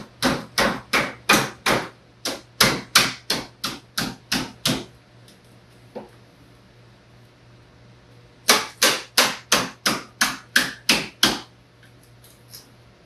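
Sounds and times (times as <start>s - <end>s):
hammer tapping sheet metal: 0.0s - 4.9s, 8.4s - 11.5s.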